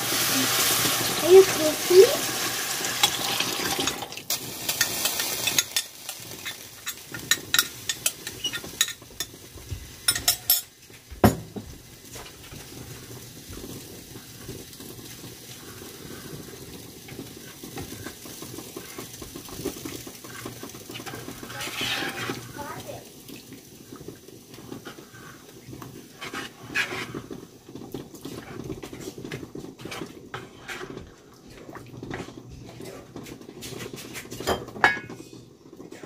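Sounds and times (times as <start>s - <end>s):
sauce sizzling in a pan: 0.0s - 36.0s
spatula scraping pan: 4.6s - 10.7s, 15.4s - 22.9s, 23.9s - 35.3s
metal spoon clinking and scraping: 4.7s - 9.4s, 10.1s - 10.7s, 21.0s - 22.4s.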